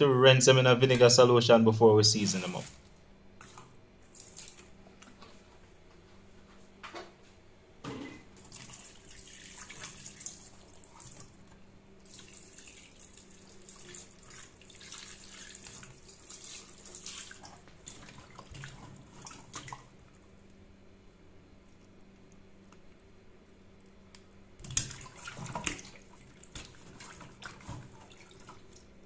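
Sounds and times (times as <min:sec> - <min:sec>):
water splashing: 0:02.2 - 0:02.9, 0:08.4 - 0:11.4, 0:12.0 - 0:20.2, 0:24.6 - 0:29.0.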